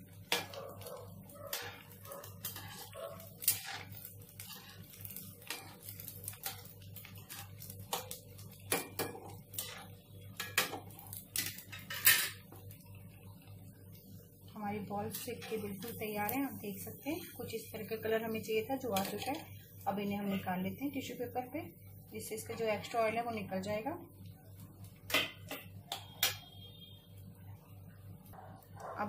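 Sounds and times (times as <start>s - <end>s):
oil sizzling: 0.0s - 28.8s
metal spoon clinking against pan: 25.1s - 26.6s.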